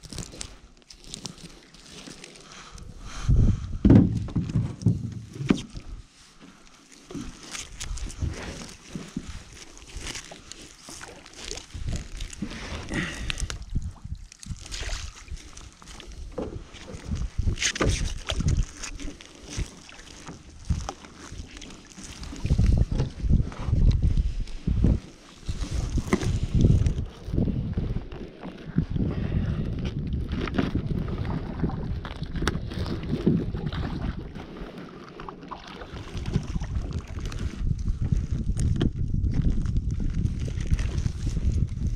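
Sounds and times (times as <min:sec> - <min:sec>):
wind buffeting microphone: 0:02.8 - 0:06.0, 0:11.5 - 0:19.0, 0:22.2 - 0:34.6, 0:35.9 - 0:41.9
knocks and thumps on metal hull: 0:03.8 - 0:05.5.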